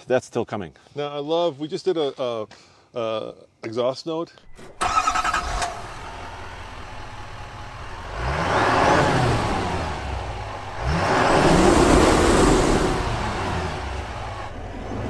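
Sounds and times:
diesel truck engine revving: 0:04.5 - 0:15.0.

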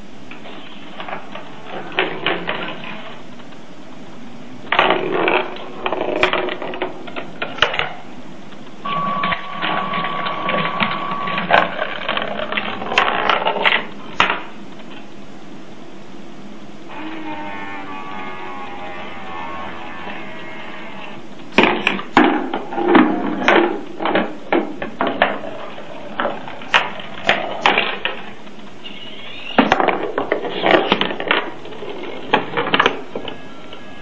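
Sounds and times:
steady high tone: 0:08.8 - 0:11.8, 0:33.2 - 0:34.0.

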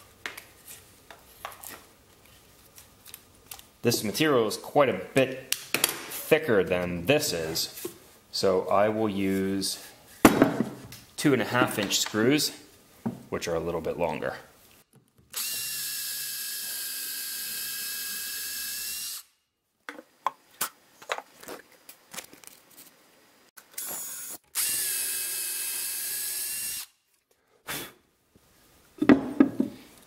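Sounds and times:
cordless drill motor whine: 0:15.4 - 0:19.3, 0:23.8 - 0:26.9.

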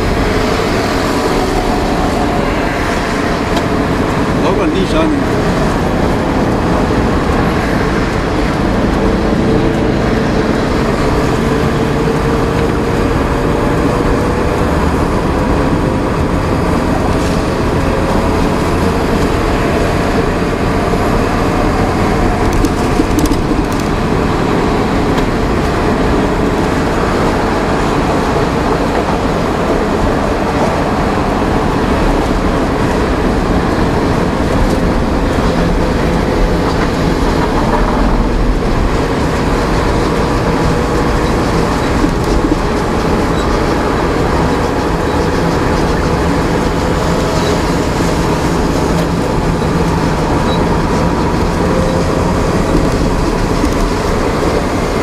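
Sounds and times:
diesel engine running: 0:00.0 - 0:55.0
road and tyre rumble: 0:00.0 - 0:55.0.

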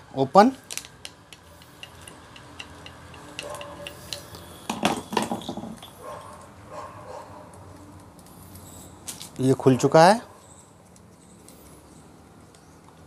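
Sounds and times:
metal clinks and knocks: 0:00.7 - 0:06.5
screwdriver metallic ticks: 0:01.0 - 0:04.4.

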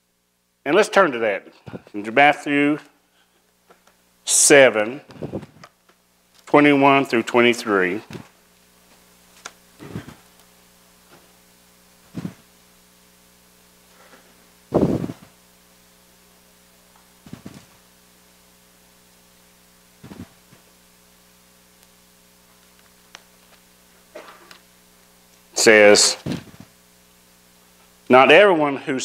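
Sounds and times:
mains hum: 0:00.0 - 0:29.0
pages rustling and knocks on wood: 0:17.2 - 0:17.8, 0:26.2 - 0:26.7.

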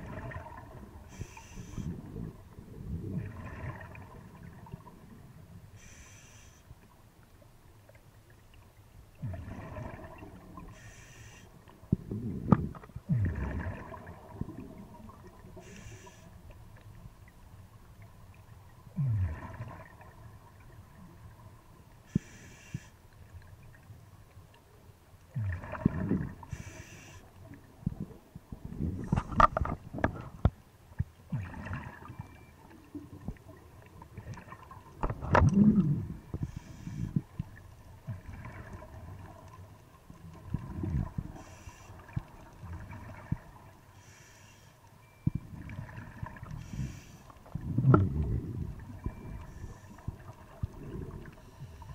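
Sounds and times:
exhaled bubbles: 0:00.0 - 0:05.2, 0:09.2 - 0:10.8, 0:11.9 - 0:15.8, 0:19.0 - 0:21.4, 0:25.3 - 0:26.8, 0:31.3 - 0:32.4, 0:33.2 - 0:37.4, 0:38.0 - 0:39.5, 0:40.4 - 0:43.7, 0:45.4 - 0:51.8
regulator hissing inhalations: 0:05.8 - 0:06.6, 0:10.8 - 0:11.5, 0:15.6 - 0:16.3, 0:22.1 - 0:23.0, 0:26.5 - 0:27.3, 0:44.0 - 0:44.8.

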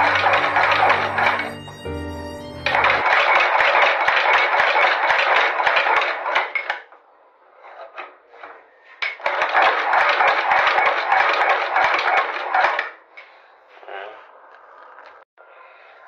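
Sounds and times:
machine metallic clatter: 0:00.0 - 0:01.5, 0:02.7 - 0:06.8, 0:09.0 - 0:13.0.

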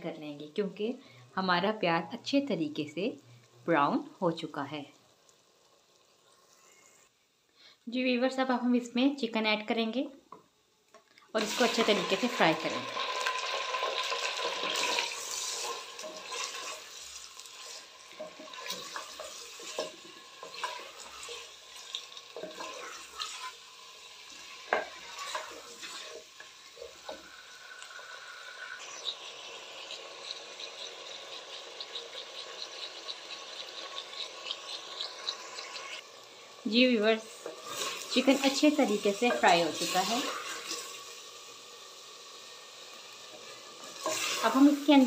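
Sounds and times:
chicken frying in hot oil: 0:11.3 - 0:45.0.

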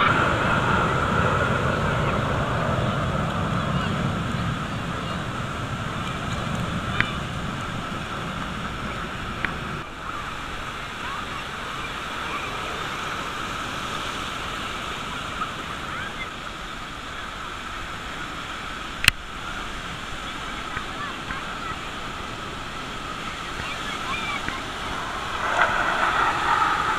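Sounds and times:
faint crowd voices: 0:00.0 - 0:14.0, 0:20.4 - 0:26.9
ocean surf breaking: 0:00.0 - 0:15.2, 0:22.0 - 0:26.9
low rumble: 0:24.4 - 0:26.9.

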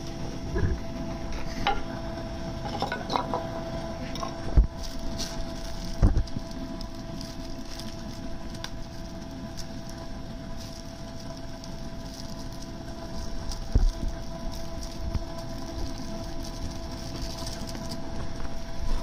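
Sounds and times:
steady background hum: 0:00.0 - 0:19.0
plastic sachets crinkling: 0:04.2 - 0:19.0.

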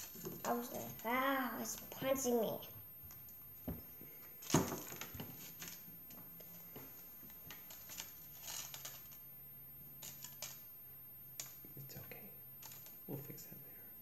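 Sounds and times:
small clicks and rustles: 0:00.0 - 0:09.3, 0:10.0 - 0:10.8, 0:12.6 - 0:13.5.

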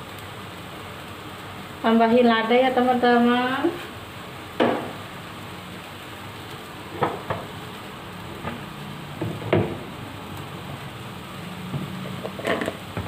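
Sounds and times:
spice paste sizzling in a wok: 0:00.0 - 0:13.0.

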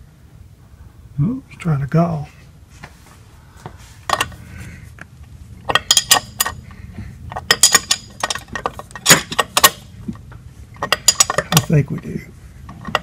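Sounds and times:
ratcheting wrench clicking: 0:05.7 - 0:06.6, 0:07.3 - 0:09.9, 0:10.8 - 0:11.7
metal clinks: 0:05.7 - 0:06.7, 0:07.3 - 0:09.9, 0:10.8 - 0:11.9.

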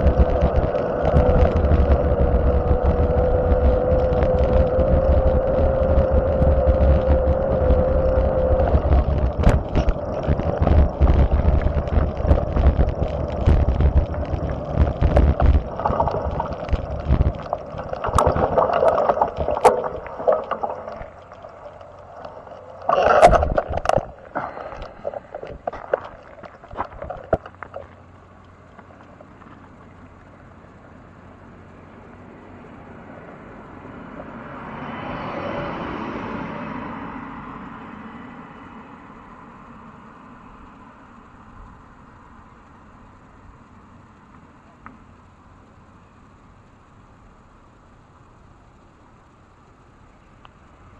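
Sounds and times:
wind rumbling on microphone: 0:00.0 - 0:28.0
car approaching: 0:00.0 - 0:44.4
quiet hum: 0:00.0 - 0:50.9.

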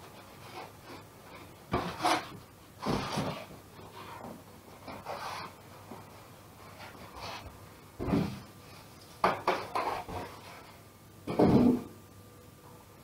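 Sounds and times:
polystyrene scraping cardboard: 0:00.2 - 0:05.6, 0:06.6 - 0:07.5.

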